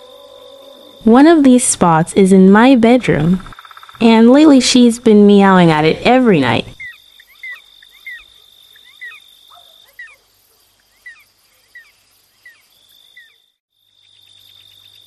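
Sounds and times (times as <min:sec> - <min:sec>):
cricket chirping calls: 0:00.0 - 0:15.0
crickets trilling: 0:00.0 - 0:15.0.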